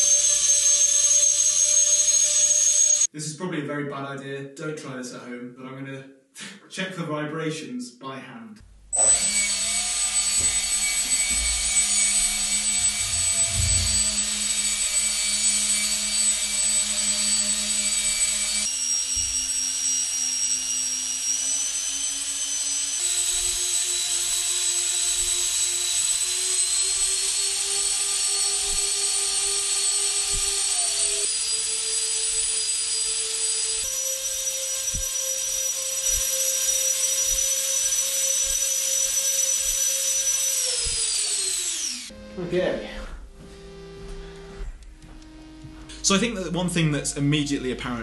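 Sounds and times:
electric fans whining: 0:09.1 - 0:18.6.

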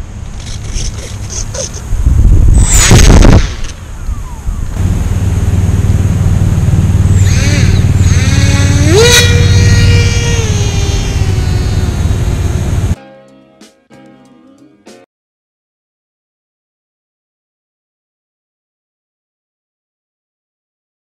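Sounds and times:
steady low rumble: 0:01.6 - 0:13.0
electric propeller motor whine: 0:02.6 - 0:13.0.

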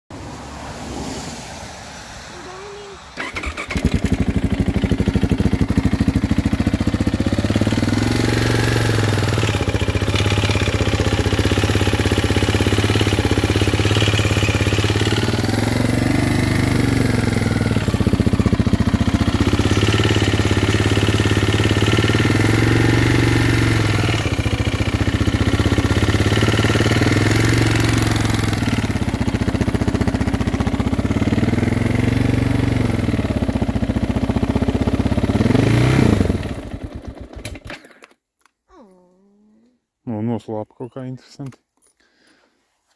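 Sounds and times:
motorcycle engine idling: 0:03.2 - 0:37.4.

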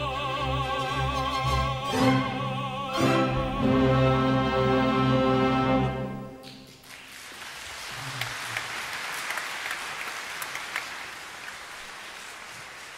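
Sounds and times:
orchestra playing: 0:00.0 - 0:06.8
audience applause: 0:06.4 - 0:12.9.

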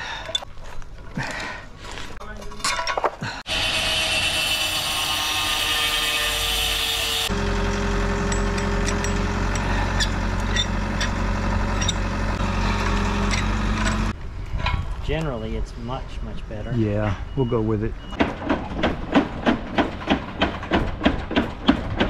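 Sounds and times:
angle grinder grinding steel: 0:03.5 - 0:14.2
low hum: 0:06.5 - 0:16.2.

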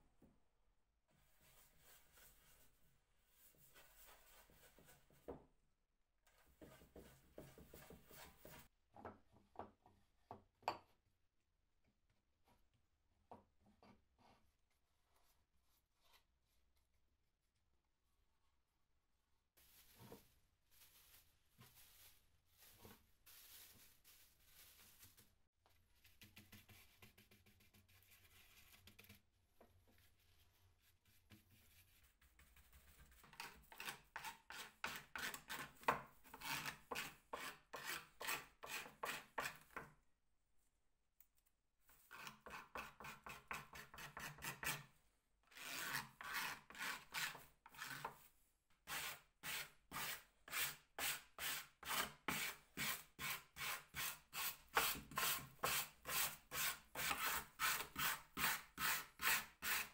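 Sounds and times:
wood scraping strokes: 0:48.9 - 0:59.9.

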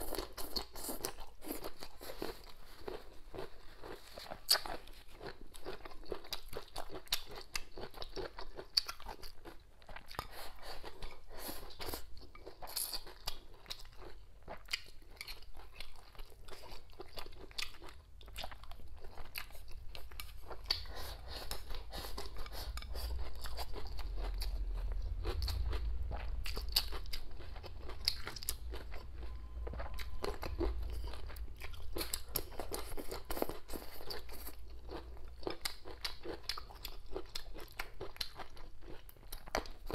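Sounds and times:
person chewing crunchy peppers: 0:00.0 - 0:39.9
low rumble: 0:23.1 - 0:32.5.

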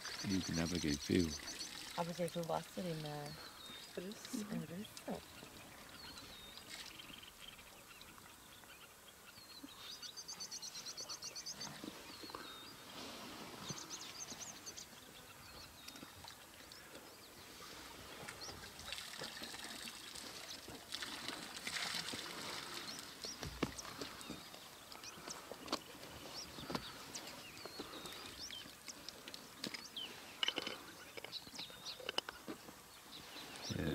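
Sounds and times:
water trickling and pouring: 0:00.0 - 0:04.9, 0:06.3 - 0:07.3, 0:18.2 - 0:24.3
birds calling: 0:00.0 - 0:21.3, 0:22.1 - 0:33.9.

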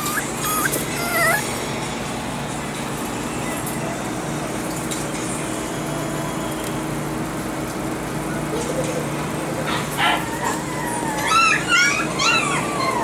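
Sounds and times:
puppy yipping: 0:00.0 - 0:01.5, 0:10.0 - 0:13.0
steady background hum: 0:00.0 - 0:13.0.

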